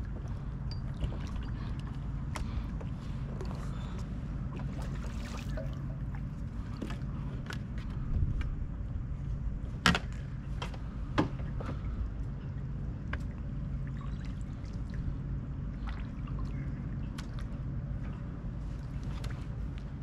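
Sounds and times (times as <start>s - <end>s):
water lapping against kayak hull: 0.0s - 8.6s.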